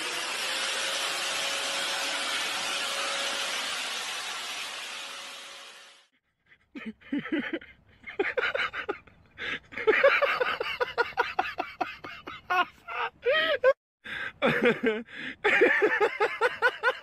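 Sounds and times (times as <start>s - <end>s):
person laughing hard: 6.5s - 17.0s.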